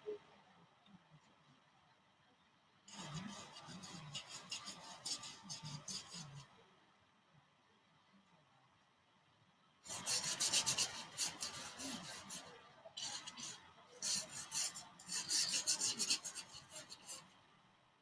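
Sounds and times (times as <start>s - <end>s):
paintbrush scrubbing on canvas: 2.9s - 6.5s, 9.9s - 17.3s.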